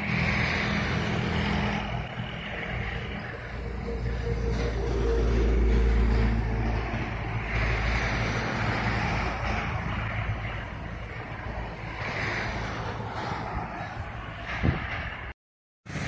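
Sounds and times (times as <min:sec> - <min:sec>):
distant diesel locomotive engine drone: 0:00.0 - 0:16.0
steady rushing noise: 0:00.0 - 0:16.0.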